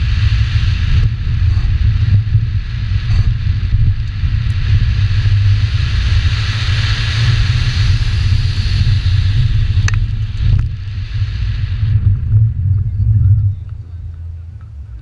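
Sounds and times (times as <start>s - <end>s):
tyres hissing on loose dirt: 0.0s - 12.3s
car engine low pulsing drone: 0.0s - 15.0s
wind on microphone: 0.0s - 15.0s
sharp ticks: 9.8s - 10.7s.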